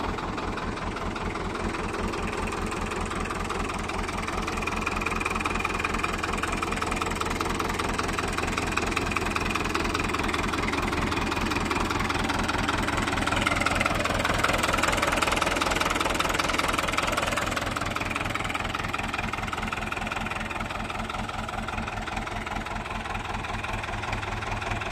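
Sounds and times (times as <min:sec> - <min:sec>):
tractor diesel engine idling: 0:00.0 - 0:24.9.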